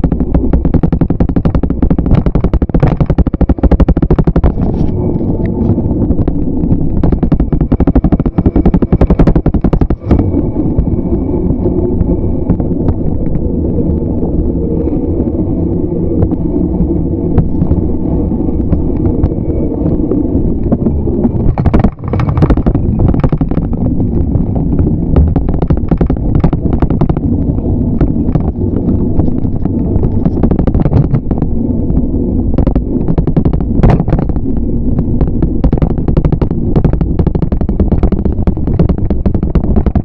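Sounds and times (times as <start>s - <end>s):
bike camera rattling and knocking: 0.0s - 11.0s, 12.0s - 13.4s, 17.3s - 18.0s, 18.6s - 40.0s
wind rumble on microphone: 0.0s - 40.0s.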